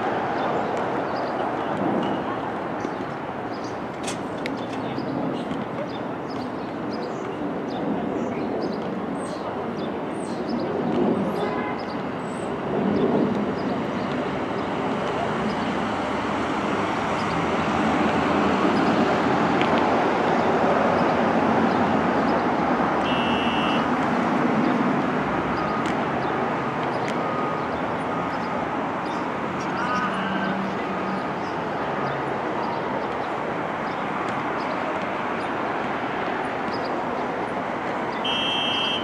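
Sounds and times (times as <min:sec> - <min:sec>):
short high tone: 0:23.1 - 0:23.9.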